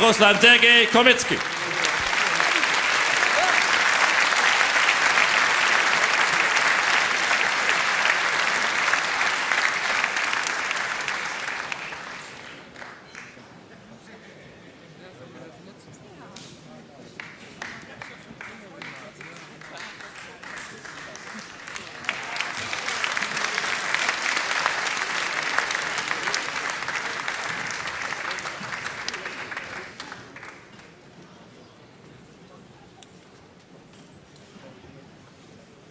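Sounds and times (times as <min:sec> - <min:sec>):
crowd applauding: 0:00.0 - 0:13.4, 0:17.2 - 0:31.0.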